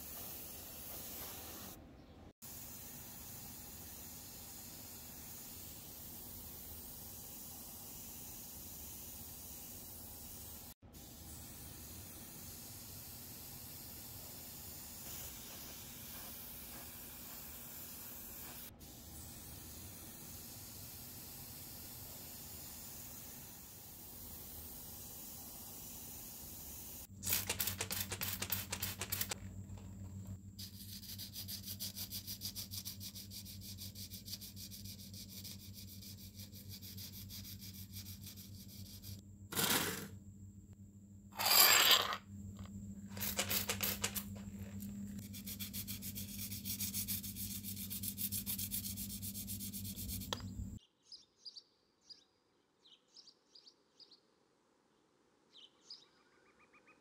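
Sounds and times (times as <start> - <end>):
tool scraping metal: 39.5 - 40.1, 41.4 - 42.2
faint bird chirps: 55.5 - 57.0.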